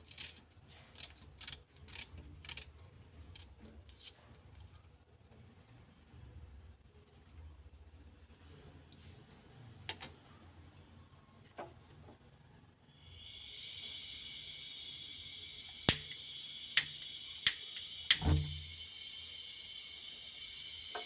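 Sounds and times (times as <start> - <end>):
gas hissing: 12.9 - 21.0
igniter clicks: 15.6 - 18.8.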